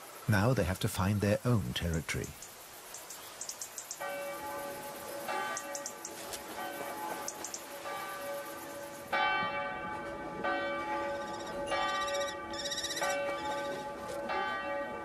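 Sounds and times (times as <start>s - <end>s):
church bell tolling: 9.1s - 15.0s.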